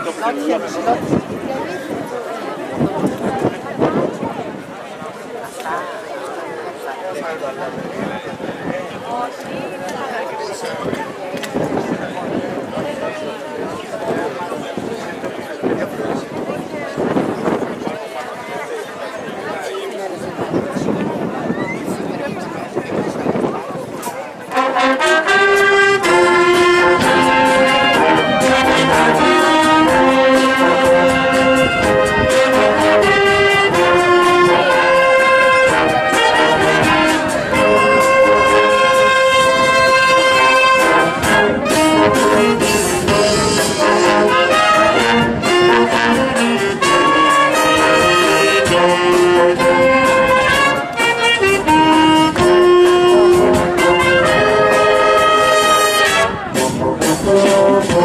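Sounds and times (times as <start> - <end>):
wind band playing: 0.0 - 2.0, 24.4 - 58.0.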